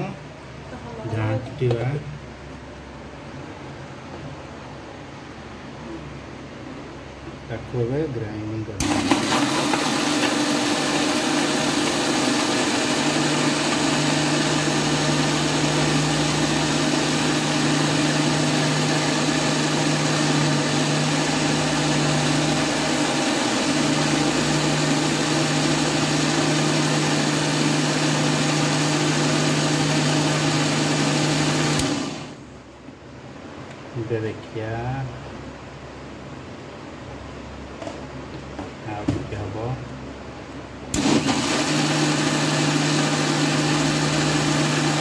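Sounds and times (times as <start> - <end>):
mixer grinder humming: 8.8 - 32.5, 40.9 - 45.0.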